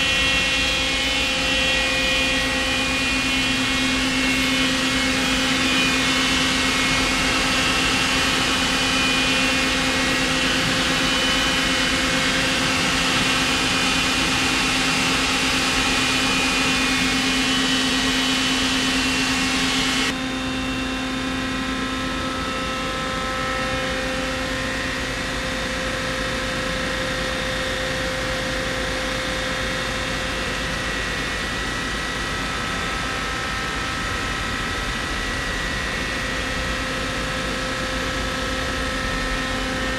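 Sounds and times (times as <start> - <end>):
lathe machine hum: 0.0 - 20.3
high machine whines: 0.0 - 39.9.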